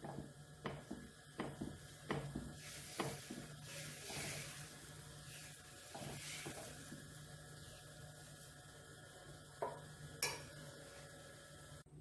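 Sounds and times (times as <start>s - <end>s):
ladle tapping: 0.0s - 4.3s
batter sizzling on a hot pan: 0.0s - 11.8s
ladle scraping a pan: 2.6s - 6.9s.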